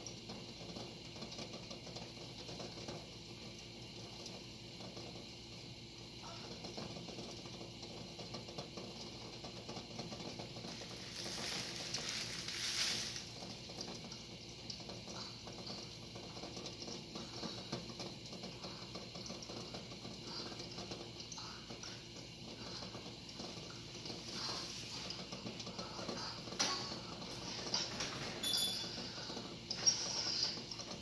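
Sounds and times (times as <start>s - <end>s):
water bubbling in pot: 0.0s - 31.0s
steam hissing: 9.8s - 13.7s, 21.4s - 26.8s, 27.4s - 31.0s.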